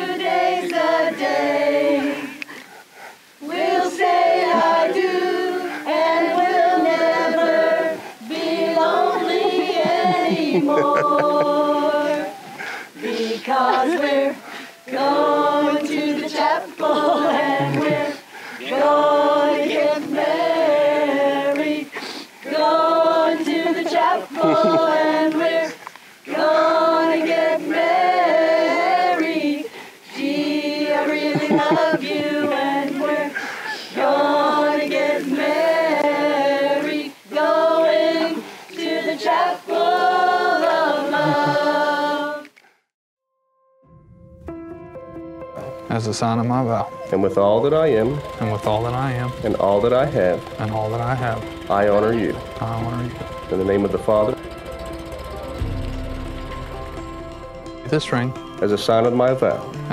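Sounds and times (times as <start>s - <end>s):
group of women singing: 0.0s - 2.6s, 3.4s - 42.6s.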